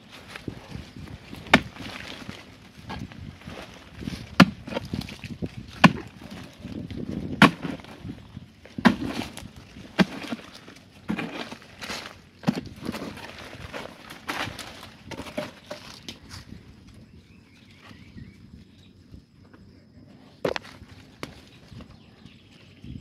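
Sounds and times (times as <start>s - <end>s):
digging tool striking hard earth: 1.3s - 8.1s, 8.8s - 15.8s.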